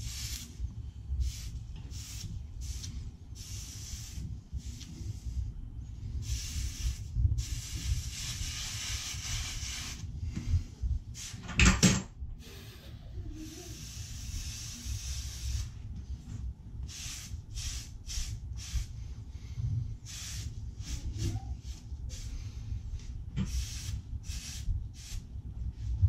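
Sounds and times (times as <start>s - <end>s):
cloth rag rubbing on pipe: 6.3s - 10.1s.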